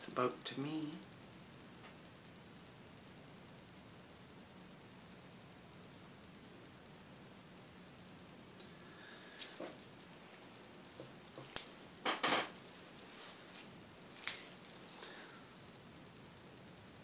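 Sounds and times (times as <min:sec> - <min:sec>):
faint steady hiss: 0:00.0 - 0:17.0
objects handled and set down: 0:11.0 - 0:13.6.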